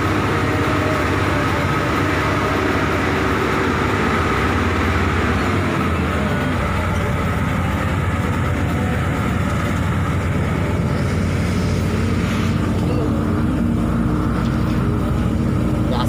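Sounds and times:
bus engine and road noise: 0.0 - 16.0
steady hum: 6.0 - 16.0.

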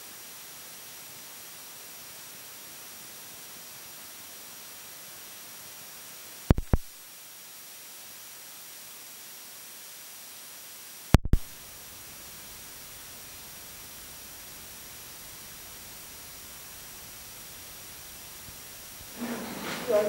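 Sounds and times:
recording hiss with faint whine: 0.0 - 20.0
sharp pops: 6.5 - 7.0, 11.1 - 11.7.

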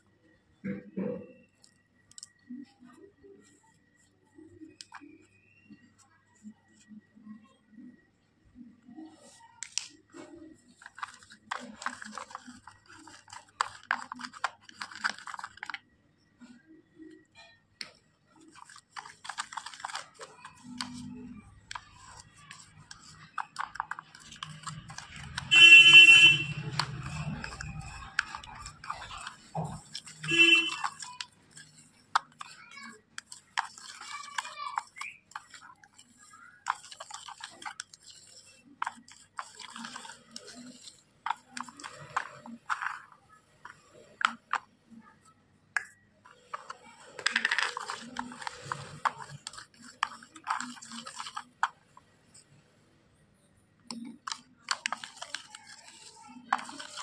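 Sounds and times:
pencil scraping wet powder: 1.4 - 7.1, 8.8 - 45.1, 45.8 - 52.7, 53.5 - 57.0
loud honking tone: 25.5 - 26.6
sharp plastic clicks: 53.8 - 57.0.

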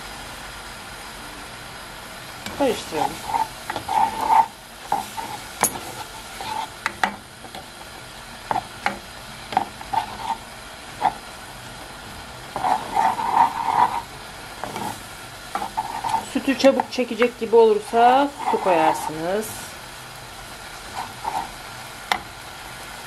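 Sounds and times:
spoon scraping a frying pan: 2.5 - 7.7, 8.5 - 11.3, 12.5 - 19.2, 20.8 - 22.3.

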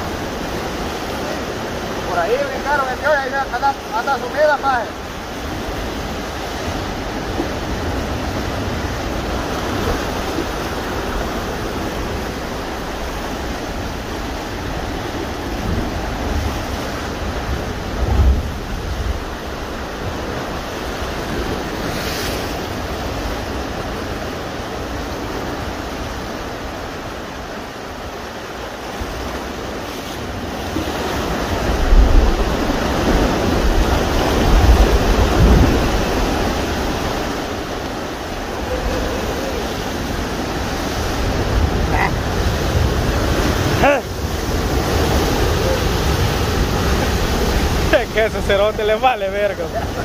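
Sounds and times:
surf breaking on rocky shore: 0.0 - 50.0
wind buffeting microphone: 30.8 - 48.9.

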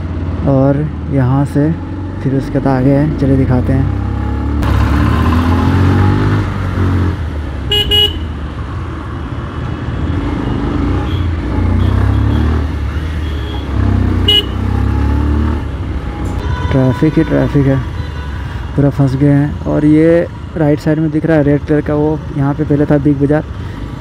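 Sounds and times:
low traffic rumble: 0.0 - 24.0
vehicle horn toots: 7.7 - 8.3, 13.2 - 14.7.

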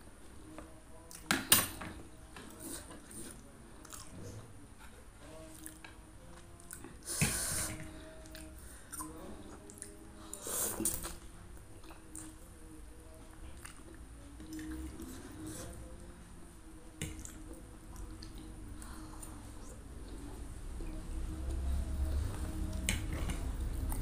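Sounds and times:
chewing: 2.4 - 7.2, 8.2 - 12.4, 13.4 - 16.0, 17.0 - 24.0.

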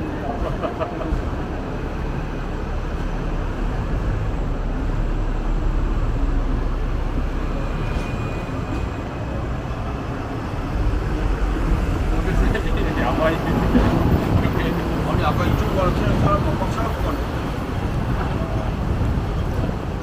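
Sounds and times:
tram rumbling on rails: 0.0 - 20.0
faint high squeal: 7.5 - 9.0.

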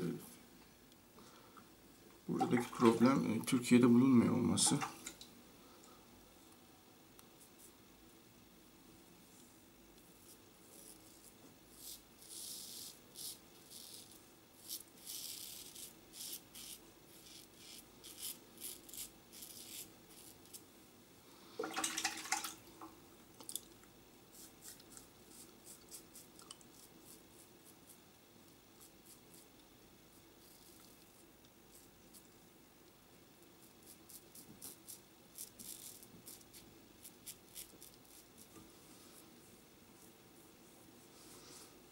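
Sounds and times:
razor scraping stubble: 10.2 - 20.6, 33.6 - 38.6.

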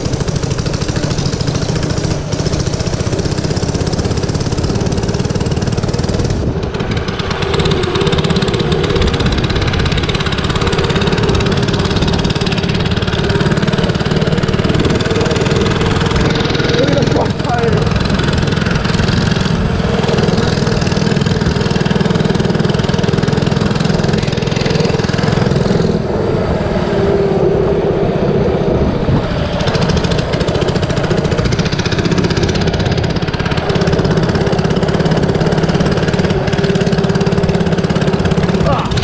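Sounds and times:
small engine droning: 0.0 - 39.0.

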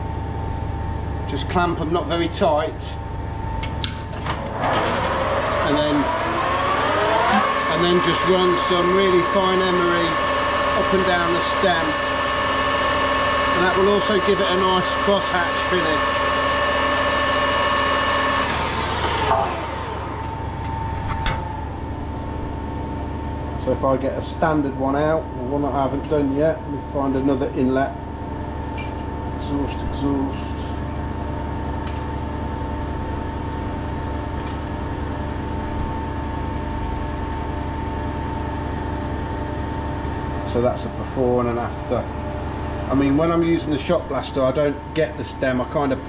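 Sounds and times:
machine hum: 0.0 - 46.0
lathe winding down: 4.2 - 23.1
lathe whining: 4.2 - 23.7.

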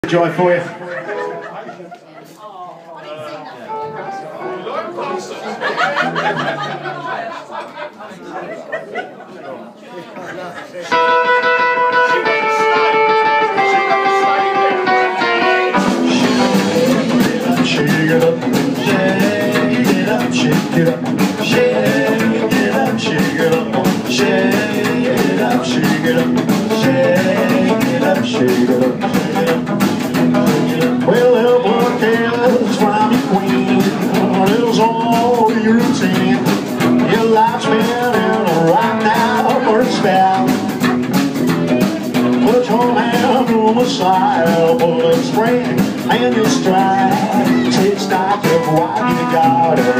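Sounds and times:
upright bass: 3.7 - 7.4, 10.9 - 49.9
drum kit beat: 5.7 - 7.1, 10.9 - 49.9
man singing: 10.9 - 41.0, 42.0 - 49.9.

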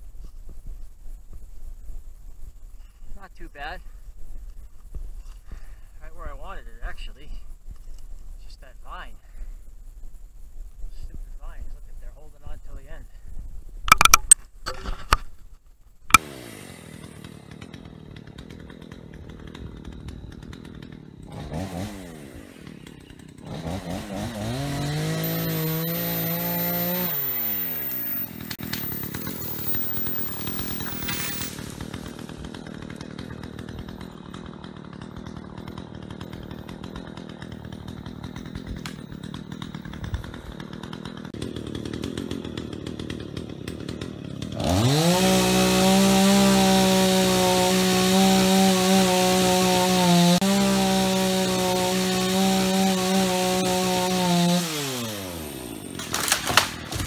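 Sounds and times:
chainsaw engine revving: 16.1 - 57.0.

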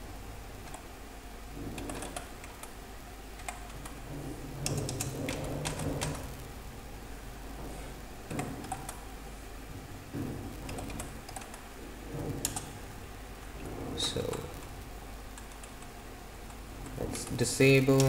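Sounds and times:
computer keyboard keystrokes: 1.7 - 2.8, 3.4 - 4.0, 4.6 - 6.3, 8.3 - 9.0, 10.6 - 11.6, 12.4 - 12.8, 15.3 - 15.9.

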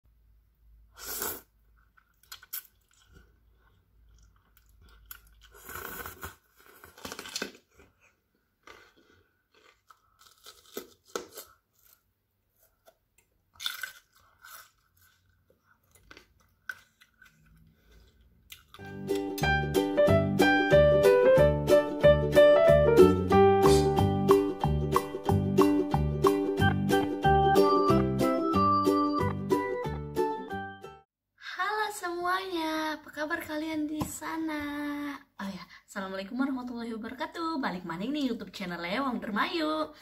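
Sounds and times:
chewing noodles: 1.8 - 18.9
crunching bites of pepper: 2.0 - 7.9, 8.6 - 19.3.

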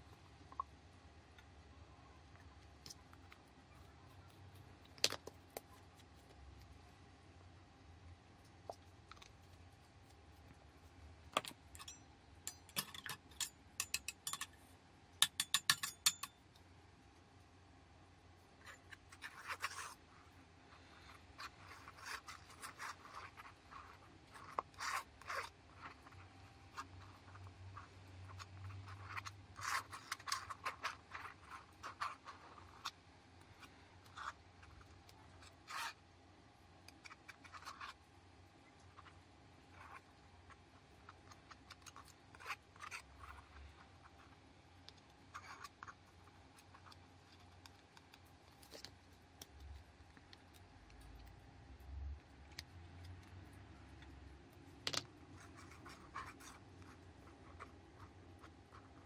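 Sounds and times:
palette knife scraping paint: 18.6 - 20.1, 20.8 - 36.0, 38.9 - 51.9.

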